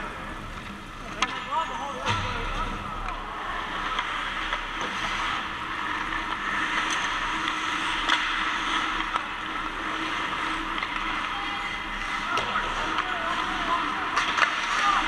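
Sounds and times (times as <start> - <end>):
low hum of rink: 0.0 - 15.0
hockey sticks and puck clacking: 0.5 - 15.0
skate blades scraping ice: 3.5 - 15.0.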